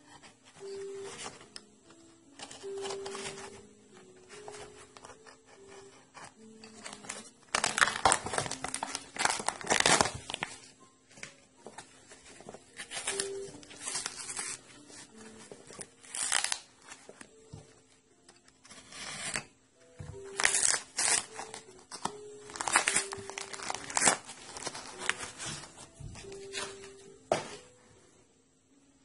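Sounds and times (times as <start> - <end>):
cardboard and tape tearing: 6.8 - 10.5, 15.8 - 16.8, 18.7 - 19.5, 20.3 - 25.7.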